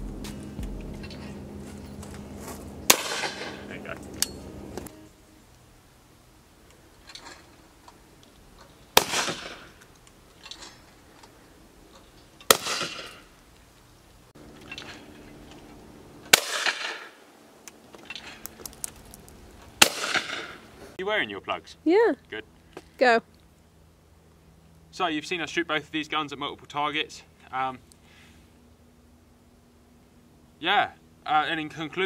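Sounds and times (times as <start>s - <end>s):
shotgun shots with echo: 2.9s - 3.7s, 9.0s - 9.8s, 12.5s - 13.2s, 16.3s - 17.2s, 19.8s - 20.6s.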